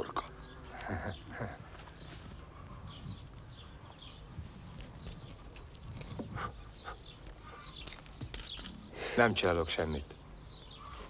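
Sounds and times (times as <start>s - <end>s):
faint bird chirps: 10.4s - 11.0s.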